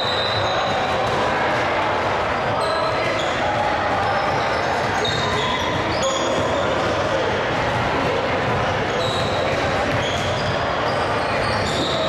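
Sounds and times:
chatter of people: 0.0s - 12.0s
sneaker squeaks on court: 8.9s - 12.0s.

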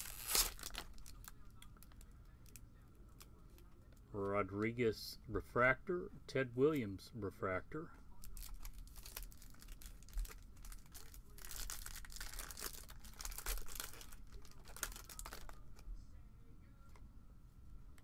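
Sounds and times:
foil wrapper tearing and crinkling: 0.0s - 1.9s, 8.2s - 15.6s.

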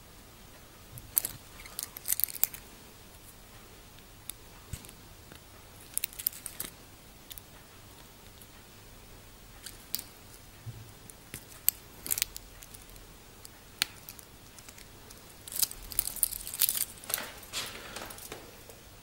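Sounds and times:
watch bracelet rustling: 1.0s - 2.7s, 5.8s - 6.7s, 9.6s - 10.4s, 11.2s - 13.0s, 13.9s - 18.8s.

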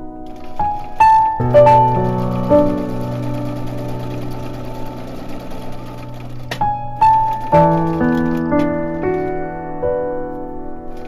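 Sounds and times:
soft background piano music: 0.0s - 11.0s
sewing machine stitching: 0.3s - 8.6s.

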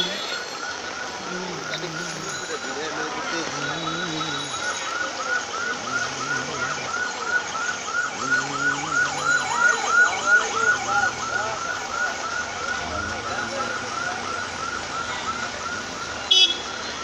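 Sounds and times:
heavy rain on street: 0.0s - 17.0s
second alarm: 0.0s - 17.0s.

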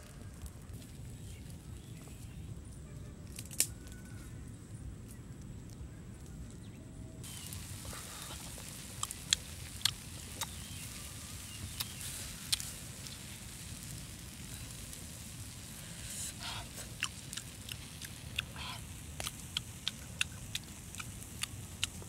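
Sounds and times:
wood fire crackling and popping: 3.3s - 3.8s, 7.2s - 22.0s
low steady rumble: 4.3s - 22.0s.

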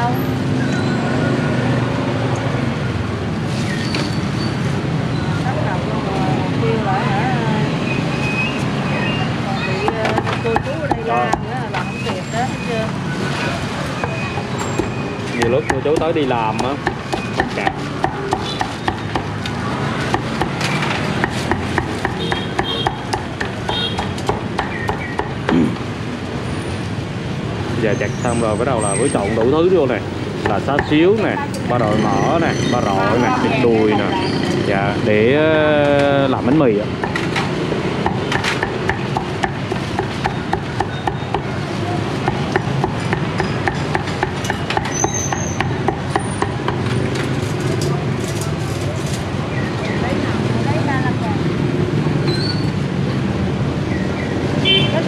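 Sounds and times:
steady background noise: 0.0s - 55.0s
cleaver chopping on wooden block: 14.0s - 25.7s, 38.0s - 41.5s, 42.2s - 46.9s.

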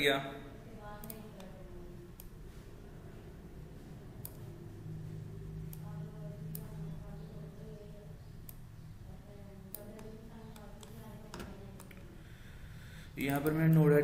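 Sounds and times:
low steady hum: 0.0s - 14.0s
computer mouse clicking: 1.0s - 2.4s, 4.2s - 4.5s, 5.7s - 6.8s, 9.6s - 12.1s, 13.2s - 13.9s.

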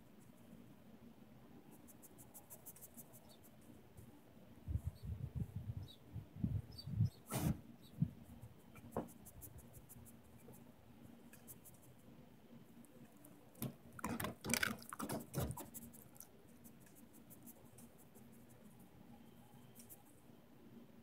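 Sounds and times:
dog sniffing and snuffling: 7.3s - 7.6s.

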